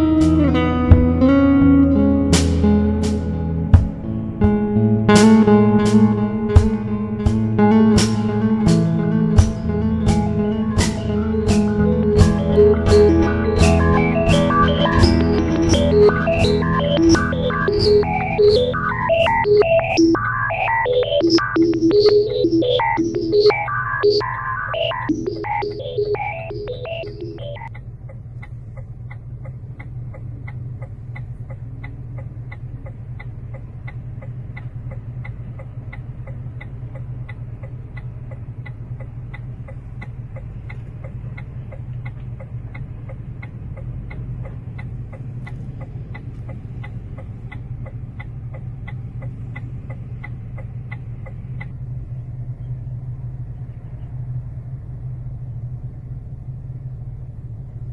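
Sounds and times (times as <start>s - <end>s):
low rumble of vehicles: 0.0s - 57.9s
short evenly spaced ticks: 11.6s - 54.9s.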